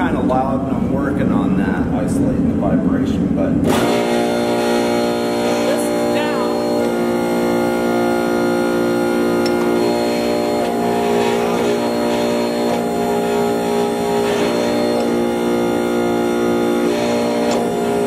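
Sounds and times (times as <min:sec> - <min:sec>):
hydraulic press motor humming: 0:03.6 - 0:18.0.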